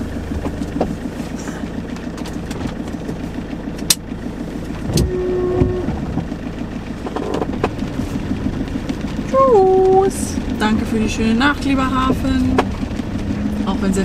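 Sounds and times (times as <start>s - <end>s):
diesel engine idling: 0.0s - 14.0s
short held tone: 4.9s - 6.0s.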